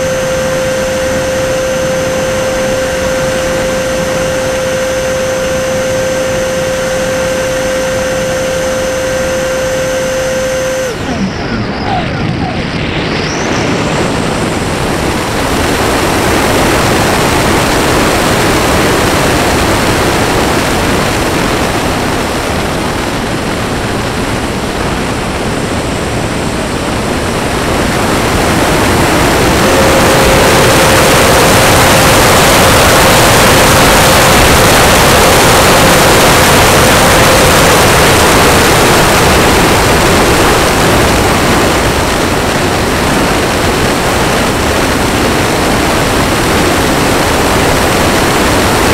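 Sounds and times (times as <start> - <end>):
faint steady tone: 0.0 - 12.0, 28.6 - 41.2
rushing airflow noise: 0.0 - 48.9.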